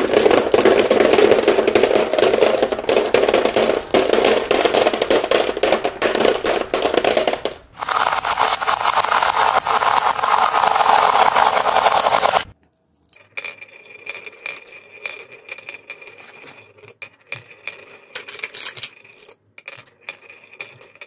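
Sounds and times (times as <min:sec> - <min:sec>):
marbles clattering into plastic truck: 0:00.0 - 0:12.6, 0:17.9 - 0:21.0
marbles rolling down wooden groove: 0:00.0 - 0:12.6, 0:13.2 - 0:21.0.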